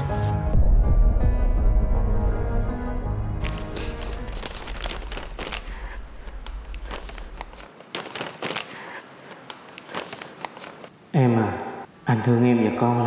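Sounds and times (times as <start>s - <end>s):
paper crinkling and rustling: 3.4s - 10.9s.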